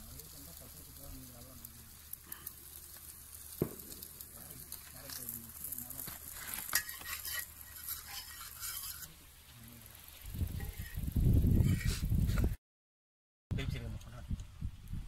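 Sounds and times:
fish sizzling in a pan: 0.0s - 12.4s
metal spatula scraping a pan: 4.7s - 9.2s, 10.5s - 11.0s, 11.6s - 12.1s.

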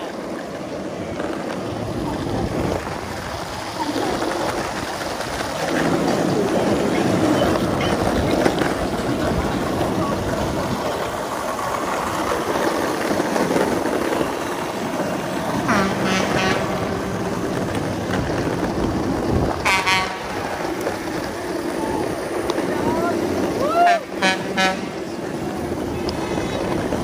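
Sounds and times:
road and wind noise: 0.0s - 27.0s
short high-pitched horn honks: 19.7s - 20.3s, 24.2s - 25.0s.

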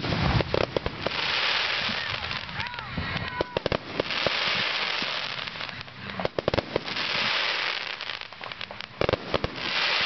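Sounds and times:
fireworks crackling: 0.0s - 10.0s
fireworks sharp bangs: 0.0s - 10.0s.

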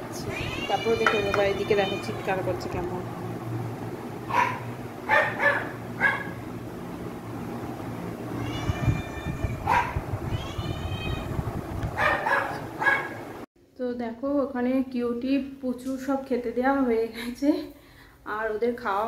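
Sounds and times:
pets crying out: 0.1s - 2.4s, 8.2s - 11.3s.

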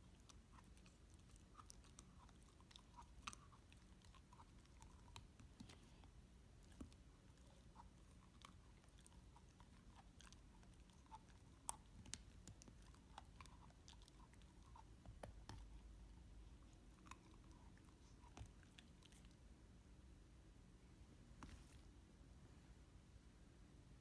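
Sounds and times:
puppy chewing plastic ball: 0.0s - 19.2s.

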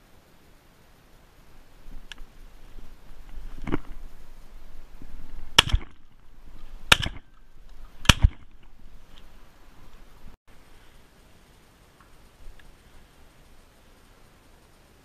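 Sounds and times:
shotgun shots with echo: 5.6s - 6.0s, 6.9s - 7.3s, 8.0s - 8.5s.

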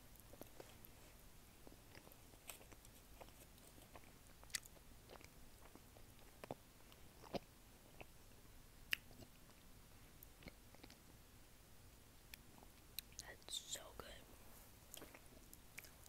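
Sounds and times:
mouth clicks and smacks chewing: 1.6s - 8.2s, 8.9s - 9.5s, 12.3s - 13.5s, 14.9s - 16.0s.

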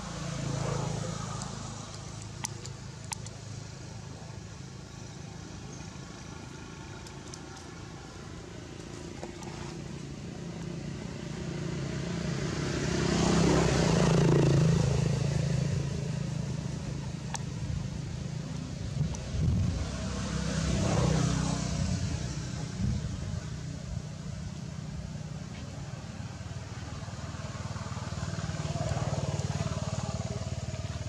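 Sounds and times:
vehicle engine passing: 0.0s - 3.7s, 9.4s - 25.1s, 25.8s - 31.0s
faint clicks: 1.4s - 3.4s, 6.9s - 7.8s.

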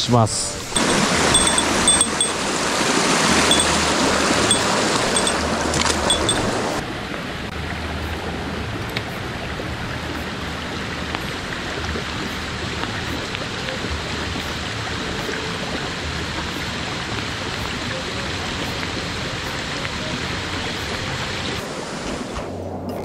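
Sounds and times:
stream rushing over rocks: 0.7s - 7.2s.

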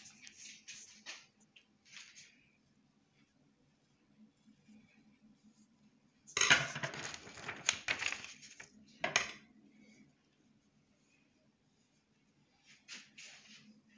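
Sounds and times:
metal clattering on tabletop: 6.4s - 8.1s, 9.0s - 9.4s.

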